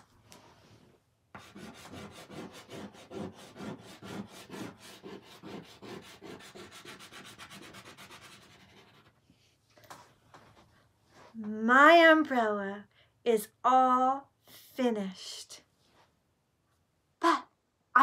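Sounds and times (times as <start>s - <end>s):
chalk scrubbing on chalkboard: 1.4s - 9.2s.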